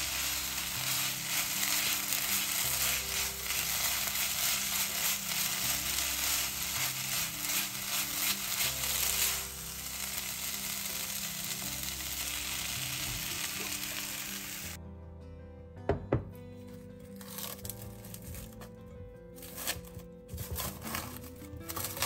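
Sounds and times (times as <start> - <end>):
filling sizzling in a pan: 0.0 - 14.8.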